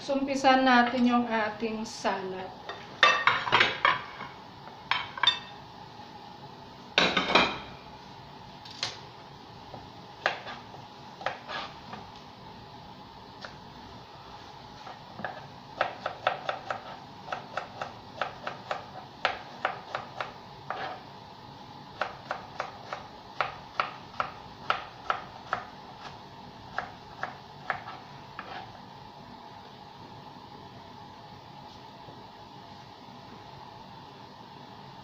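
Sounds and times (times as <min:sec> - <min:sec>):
faint steady hum: 0:00.0 - 0:35.0
knife chopping on cutting board: 0:10.2 - 0:12.1, 0:14.8 - 0:21.0, 0:22.0 - 0:28.7.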